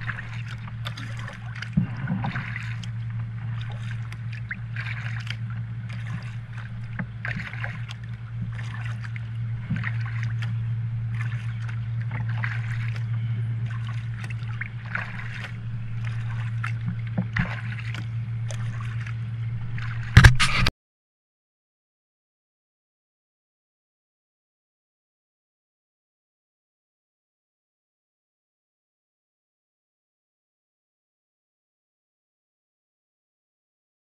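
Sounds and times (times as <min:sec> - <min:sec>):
low hum: 0:00.0 - 0:20.7
paddle splashing in water: 0:00.0 - 0:20.7.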